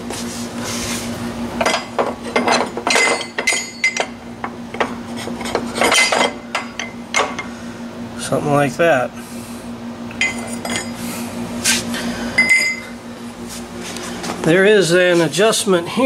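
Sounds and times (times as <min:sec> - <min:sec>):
metal tube clinking and knocking: 0:01.6 - 0:04.2, 0:05.7 - 0:07.4.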